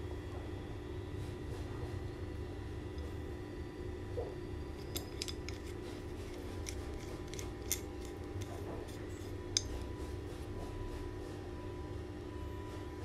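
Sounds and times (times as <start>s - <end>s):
wrench metallic clicks: 4.8s - 9.8s.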